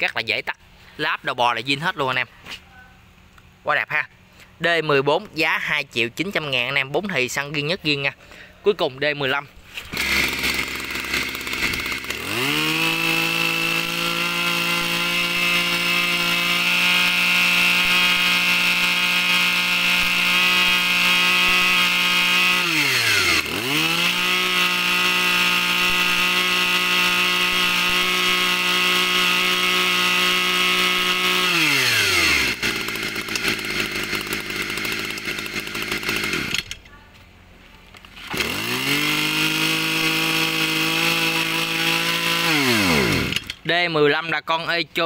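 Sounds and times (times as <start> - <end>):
brush cutter engine revving: 9.1 - 36.8, 38.0 - 43.7.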